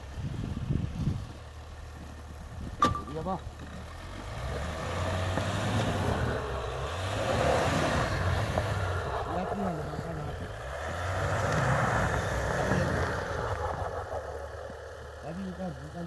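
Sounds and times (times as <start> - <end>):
tyres churning snow: 0.0 - 16.0
pickup truck engine revving: 3.8 - 16.0.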